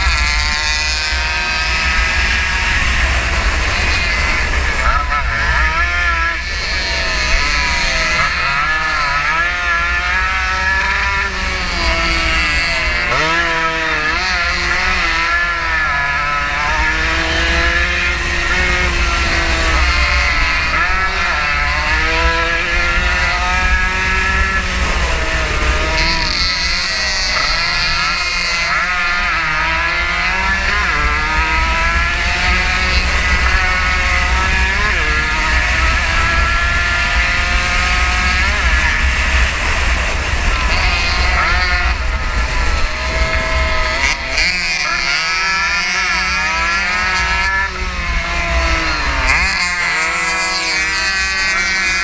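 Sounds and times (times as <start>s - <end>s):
racing motorcycle engine revving: 0.0s - 52.0s
wind rumble on microphone: 11.0s - 44.6s.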